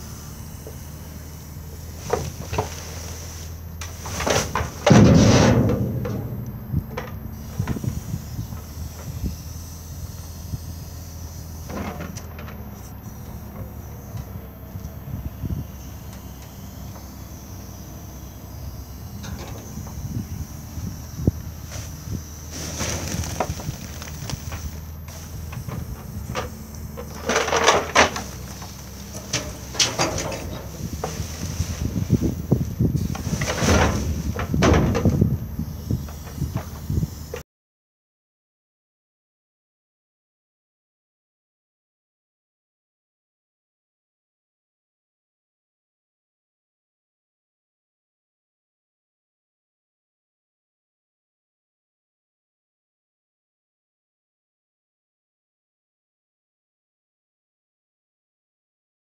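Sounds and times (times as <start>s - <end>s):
engine running steadily: 0.0s - 37.4s
metal knocks and scraping: 3.8s - 7.8s, 26.3s - 31.8s
bale wrap scraping container: 21.7s - 25.4s.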